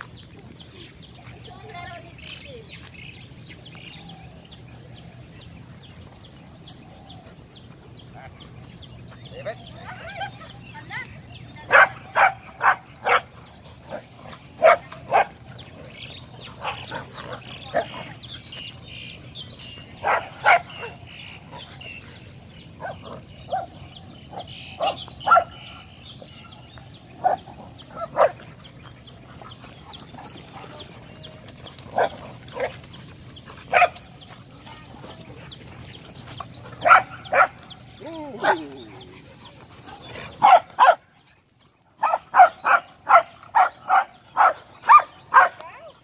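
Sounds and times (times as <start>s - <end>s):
dogs barking in play: 9.3s - 22.0s, 22.6s - 46.0s.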